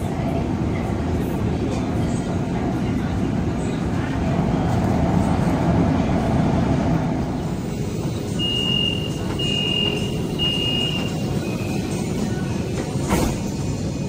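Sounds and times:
train car low hum: 0.0 - 14.0
door closing warning beeps: 8.4 - 11.8.

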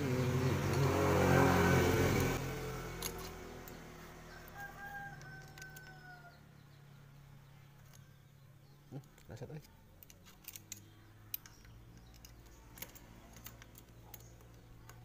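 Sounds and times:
rooster crowing: 4.2 - 6.5.

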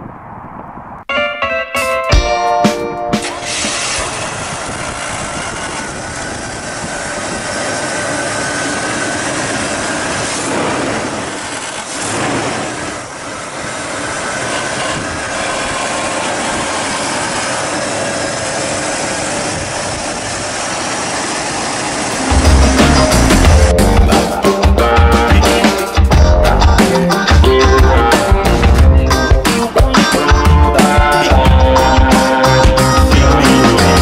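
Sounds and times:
car engine idling: 3.5 - 12.0, 12.7 - 24.9.

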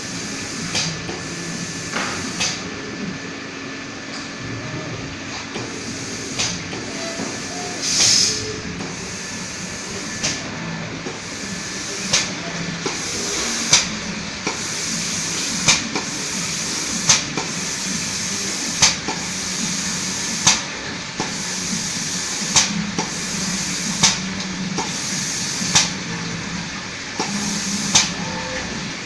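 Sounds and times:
low machine hum: 0.0 - 29.0
spray gun hissing: 5.6 - 10.2, 11.2 - 13.8, 14.4 - 20.5
sharp air bursts: 5.6 - 10.5, 11.1 - 26.0, 27.2 - 28.2.

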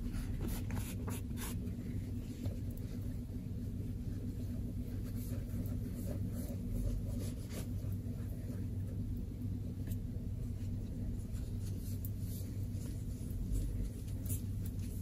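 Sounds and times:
cloth rubbing on glass: 0.0 - 8.8
steady low hum: 0.0 - 15.0.

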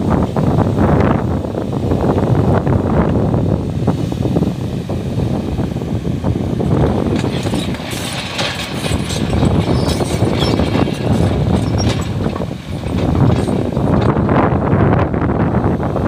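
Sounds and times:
excavator diesel engine under load: 0.0 - 16.0
soil and stones scraping and clattering: 6.8 - 14.2.

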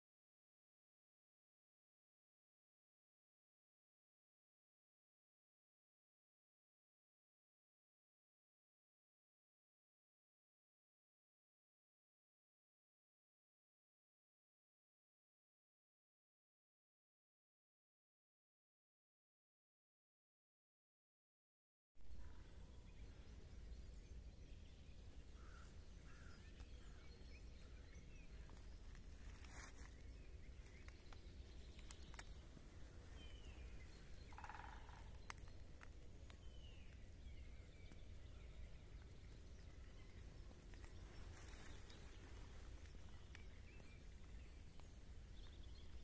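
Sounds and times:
faint bird calls: 25.1 - 46.0.

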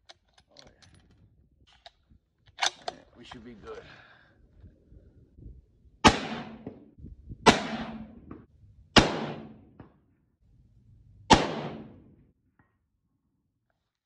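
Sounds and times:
rifle shots echoing: 6.0 - 6.8, 7.5 - 8.3, 9.0 - 9.8, 11.3 - 12.1.

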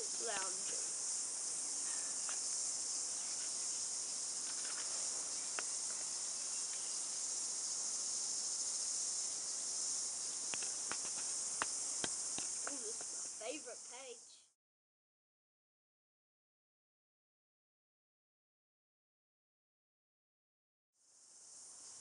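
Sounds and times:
insect chorus chirring: 0.0 - 14.6, 21.0 - 22.0.

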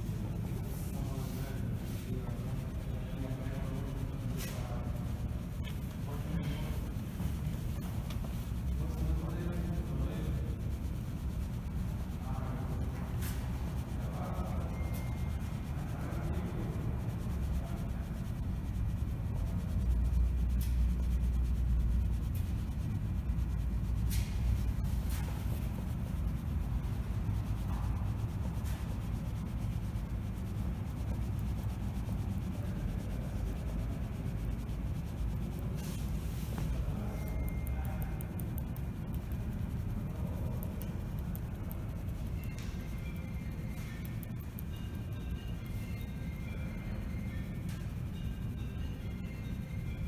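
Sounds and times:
fabric rubbing on microphone: 0.0 - 14.2, 18.0 - 37.1
sharp clicks: 37.2 - 44.8.

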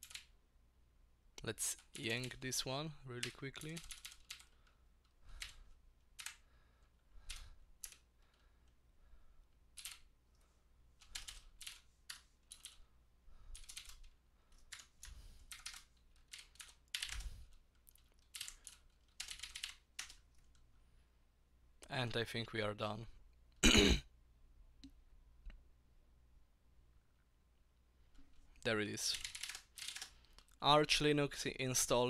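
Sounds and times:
computer keyboard typing: 0.0 - 0.4, 1.7 - 2.4, 3.2 - 6.4, 7.2 - 8.4, 9.7 - 10.1, 11.0 - 12.9, 13.5 - 20.6, 29.1 - 30.2.

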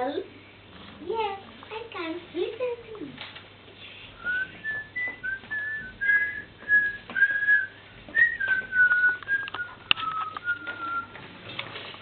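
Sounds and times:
child whistling a tune: 4.2 - 11.2.

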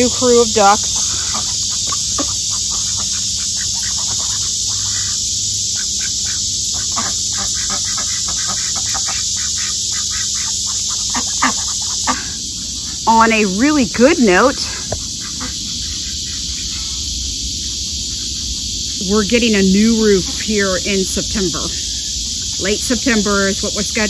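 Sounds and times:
insects droning: 0.0 - 24.0
ducks pecking at grain: 0.1 - 5.2, 7.0 - 12.3.

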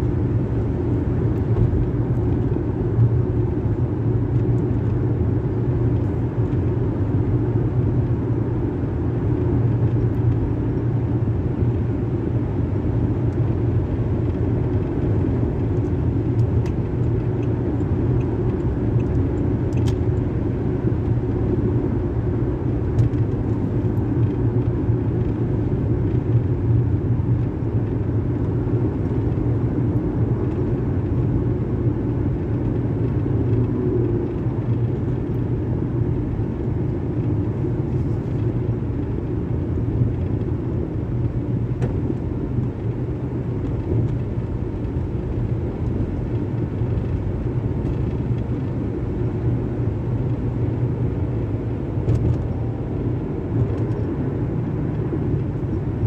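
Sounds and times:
car road and engine rumble: 0.0 - 56.0.

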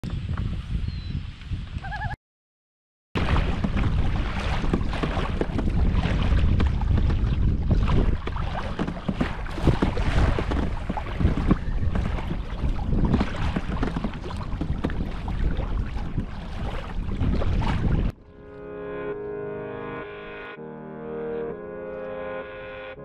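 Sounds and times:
wind buffeting microphone: 0.0 - 2.2, 3.2 - 18.2
waves slapping against hull: 3.2 - 18.2.

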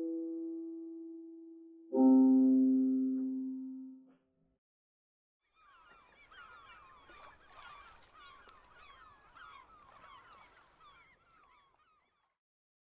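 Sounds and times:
flock of birds honking: 5.6 - 12.2.

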